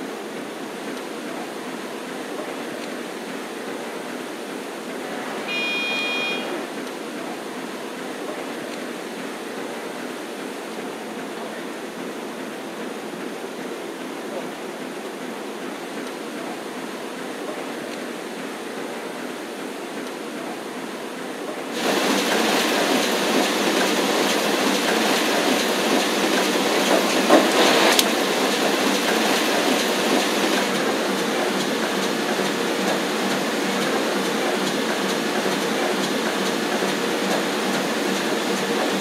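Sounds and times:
printing press clattering: 21.7 - 39.0.

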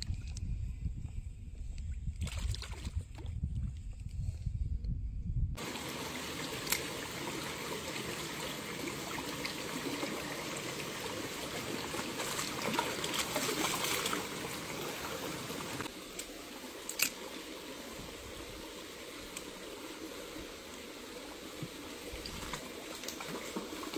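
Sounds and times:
stream running over stones: 5.6 - 23.9.

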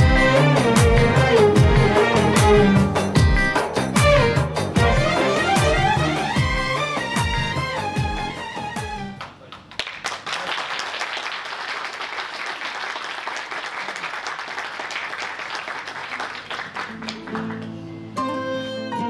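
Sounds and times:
music with sustained notes: 0.0 - 9.2, 16.9 - 19.0
audience applauding: 9.2 - 17.9.

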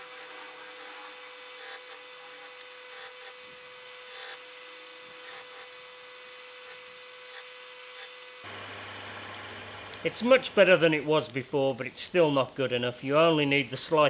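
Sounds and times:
wood rasping on sanding disc: 0.0 - 8.4
disc sander humming: 0.0 - 11.1.

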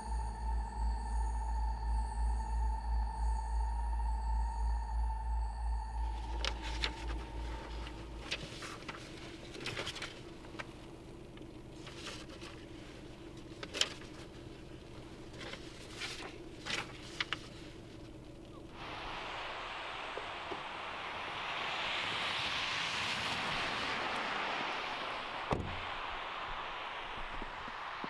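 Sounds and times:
faint steady hum: 0.0 - 28.0
low pulsing: 0.0 - 28.0
steady hiss: 6.0 - 28.0
paper rustling: 6.1 - 10.8, 11.4 - 18.3.

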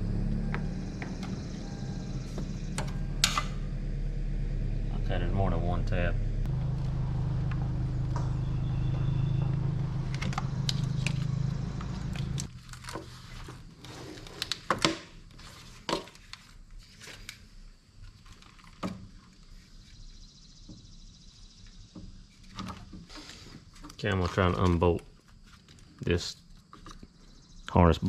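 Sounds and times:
steady low hum: 0.0 - 13.8.

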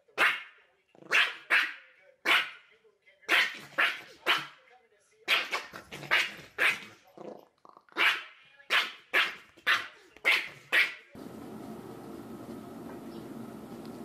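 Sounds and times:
small dog barking: 0.2 - 2.6, 3.3 - 4.6, 5.3 - 7.0, 8.0 - 11.1.

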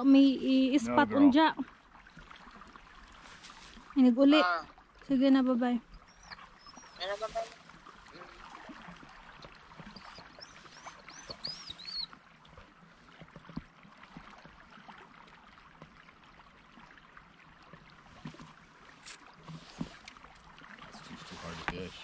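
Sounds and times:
flowing river water: 0.0 - 22.0
high chirps: 10.0 - 12.1.

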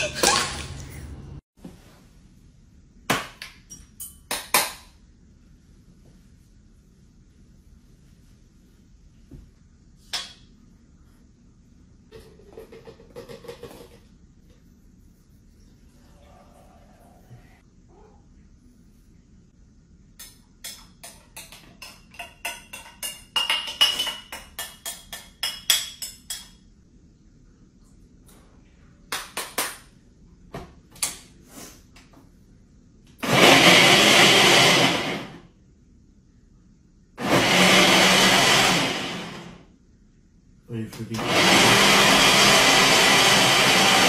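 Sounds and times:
clinks and taps: 20.2 - 26.6
countertop blender running: 33.2 - 35.4, 37.2 - 39.6, 41.2 - 44.0.

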